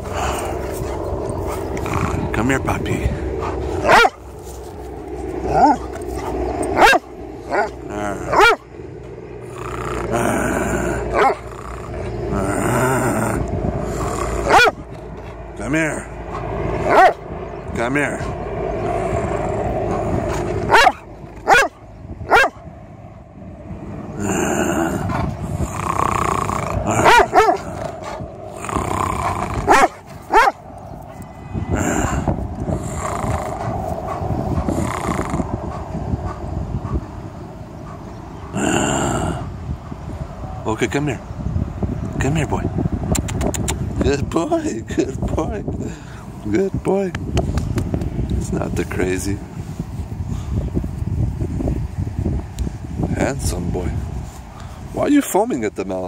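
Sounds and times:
dog growling: 0:00.0 - 0:17.2, 0:18.1 - 0:21.7, 0:24.0 - 0:30.7, 0:31.8 - 0:37.2, 0:37.8 - 0:39.6
dog barking: 0:03.4 - 0:04.2, 0:05.5 - 0:08.6, 0:14.5 - 0:14.8, 0:16.8 - 0:17.2, 0:20.7 - 0:22.6, 0:27.0 - 0:27.6, 0:29.7 - 0:31.2.

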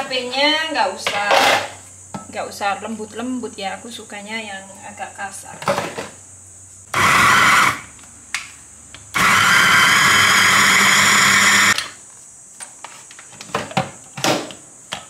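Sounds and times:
electric food chopper running: 0:06.9 - 0:07.9, 0:09.1 - 0:11.8.

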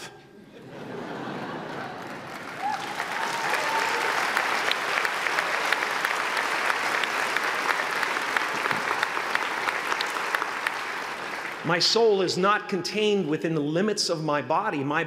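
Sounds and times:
large audience applauding: 0:01.2 - 0:11.8
person whooping: 0:02.6 - 0:04.2.

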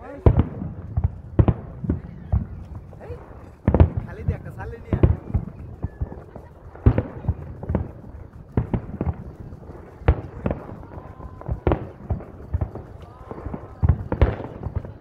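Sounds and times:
fireworks bursting with bangs: 0:00.0 - 0:15.0.

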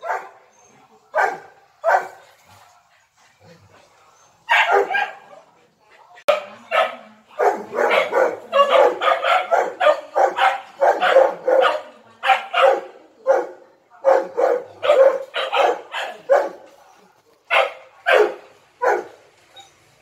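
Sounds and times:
dogs barking: 0:00.0 - 0:00.5, 0:01.1 - 0:02.3, 0:04.4 - 0:05.4, 0:06.3 - 0:16.8, 0:17.5 - 0:19.2.

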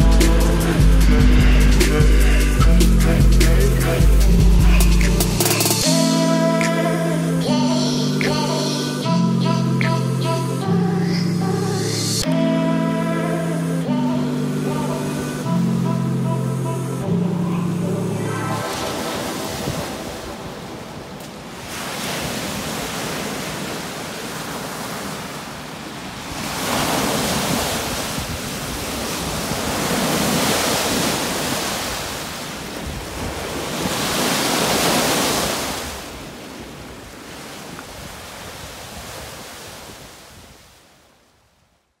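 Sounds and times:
waves washing onto sandy shore: 0:18.6 - 0:41.1.

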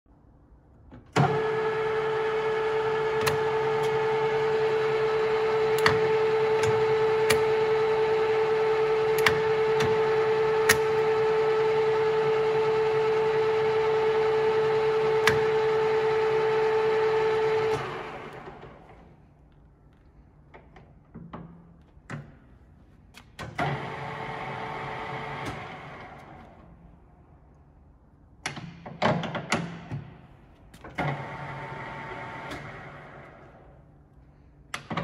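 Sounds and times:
lathe running with gear whine: 0:01.2 - 0:18.9
lathe control clicks: 0:01.2 - 0:19.0, 0:30.8 - 0:33.4.

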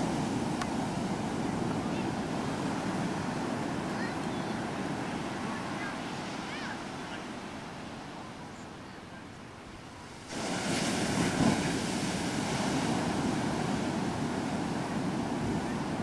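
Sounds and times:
surf breaking on beach: 0:00.0 - 0:08.4, 0:09.9 - 0:16.0
wind buffeting microphone: 0:10.2 - 0:16.0.

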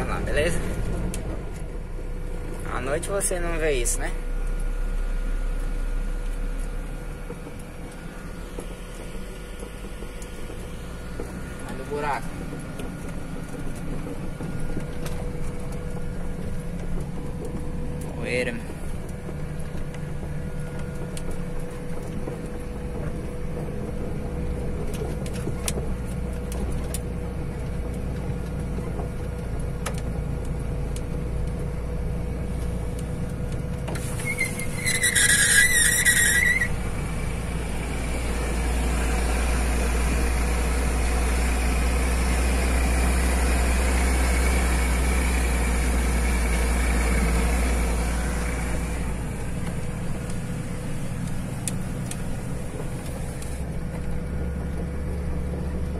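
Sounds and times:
diesel truck engine running: 0:00.0 - 0:55.9
high squeal: 0:34.1 - 0:36.9.

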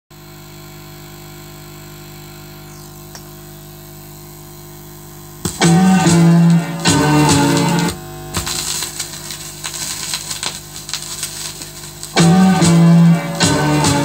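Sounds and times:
vinyl surface hiss and hum: 0:05.3 - 0:14.0
instrumental song intro: 0:05.6 - 0:08.0, 0:12.2 - 0:14.0.

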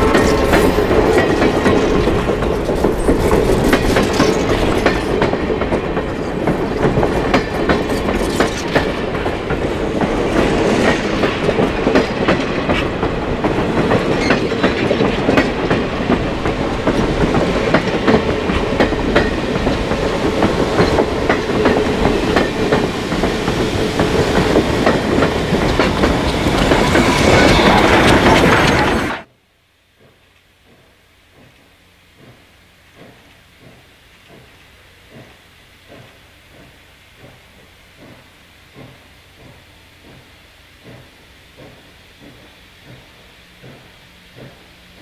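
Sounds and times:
steam locomotive hissing: 0:00.0 - 0:29.3, 0:29.9 - 0:45.0
train wheels clicking over rail joints: 0:00.0 - 0:29.3, 0:29.9 - 0:45.0.

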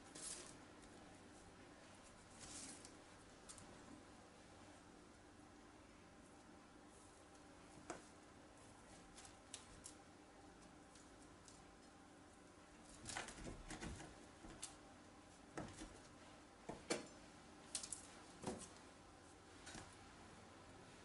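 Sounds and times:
soft paper rustling: 0:01.8 - 0:03.7.

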